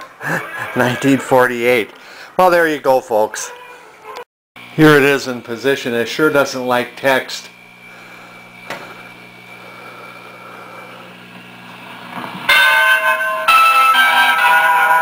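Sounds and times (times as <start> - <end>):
television speaker hum: 4.6 - 12.5
bell-like music chords: 12.5 - 15.0.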